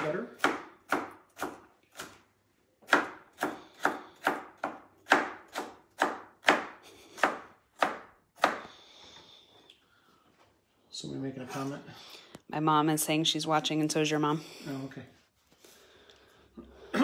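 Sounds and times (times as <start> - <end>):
knife chopping on cutting board: 0.0 - 2.2, 2.8 - 8.7.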